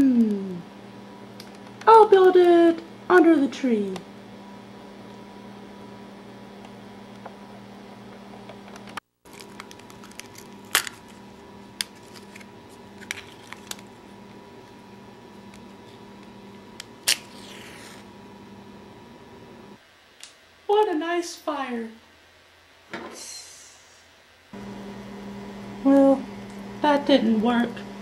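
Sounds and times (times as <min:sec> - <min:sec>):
steady hum: 0:00.0 - 0:28.0
matchbook clicks and rustles: 0:09.2 - 0:11.2, 0:11.8 - 0:14.0, 0:15.5 - 0:18.0
match striking and flaring: 0:17.0 - 0:18.1.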